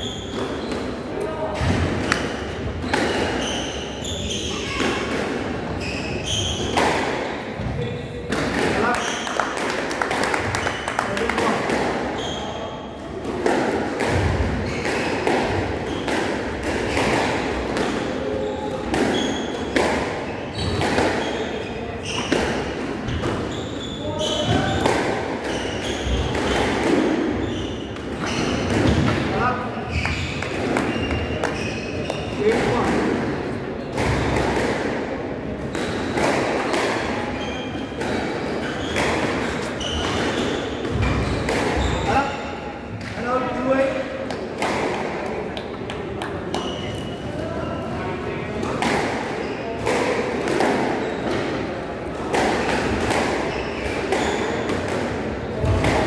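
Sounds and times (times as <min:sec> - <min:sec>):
racquets striking squash ball: 0:00.0 - 0:56.0
shoes squeaking on wooden floor: 0:02.8 - 0:04.8, 0:05.8 - 0:06.7, 0:20.3 - 0:22.3, 0:23.1 - 0:24.8, 0:25.5 - 0:26.7, 0:27.4 - 0:29.0, 0:29.8 - 0:32.5, 0:37.1 - 0:42.4, 0:46.5 - 0:47.9, 0:53.4 - 0:54.7.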